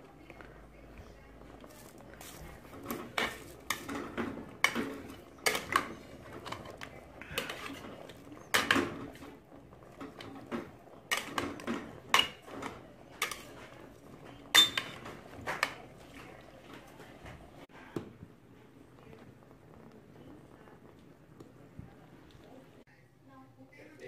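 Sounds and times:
metal cooking pot clattering: 0:01.6 - 0:17.5.

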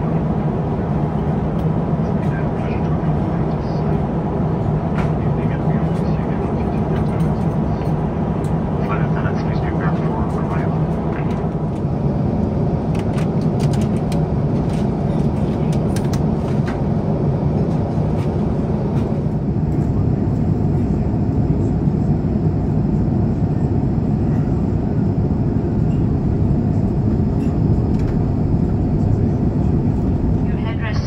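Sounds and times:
airliner cabin airflow and engines: 0:00.0 - 0:31.0.

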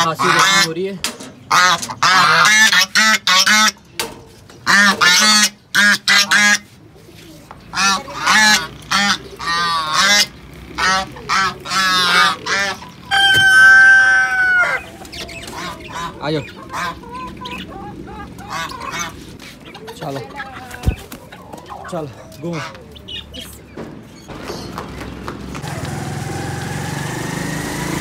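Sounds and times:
geese honking: 0:00.0 - 0:03.9, 0:04.6 - 0:06.8, 0:07.7 - 0:22.9.

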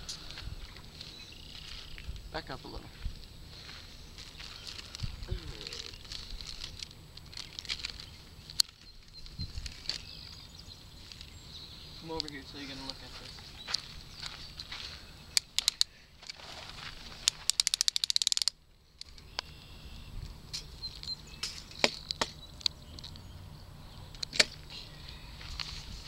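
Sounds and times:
rapid run of clicks: 0:17.2 - 0:19.2.

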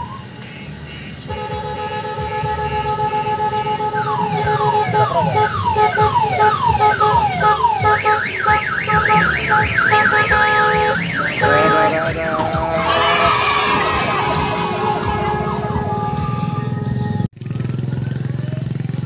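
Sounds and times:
electronic siren effects: 0:00.0 - 0:00.4, 0:03.9 - 0:16.8
train engine rumbling: 0:00.0 - 0:17.2.

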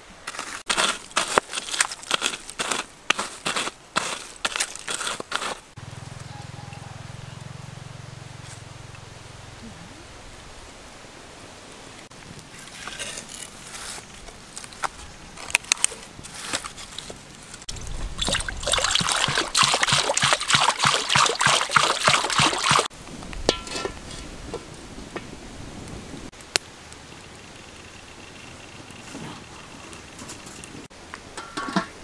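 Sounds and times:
water splashing into metal wok: 0:18.2 - 0:22.9.

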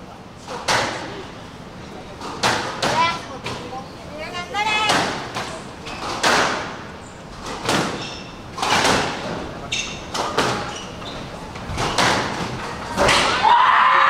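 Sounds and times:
sneaker squeaks on wooden floor: 0:07.8 - 0:08.5, 0:09.7 - 0:12.3.

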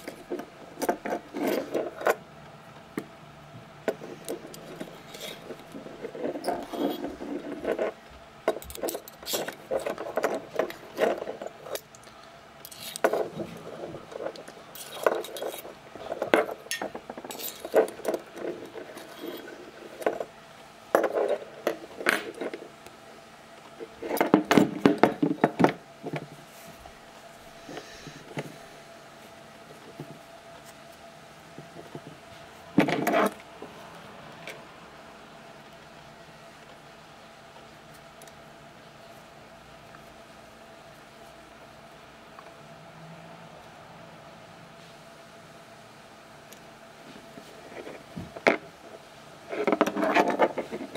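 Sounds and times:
tweezers scraping and clinking in metal: 0:12.6 - 0:13.1, 0:14.7 - 0:15.7, 0:16.7 - 0:18.2.

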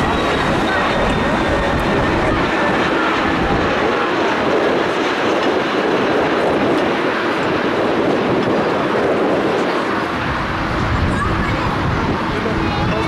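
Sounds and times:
jet engines roaring: 0:00.0 - 0:13.0.

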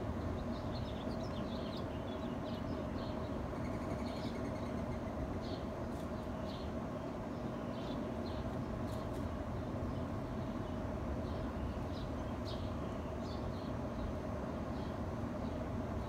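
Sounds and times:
faint hum: 0:00.0 - 0:16.0
small birds chirping: 0:00.0 - 0:16.0
bird trill: 0:03.0 - 0:05.6.

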